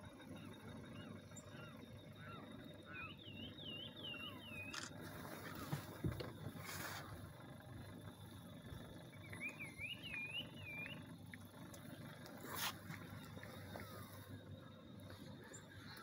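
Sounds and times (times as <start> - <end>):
faint low rumble: 0.0 - 16.0
bird whistling call: 9.2 - 11.0.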